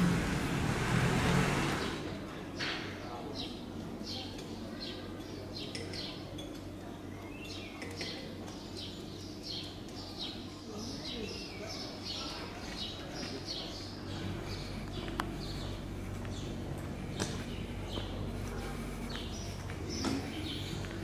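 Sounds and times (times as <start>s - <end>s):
low steady hum: 8.7s - 21.0s.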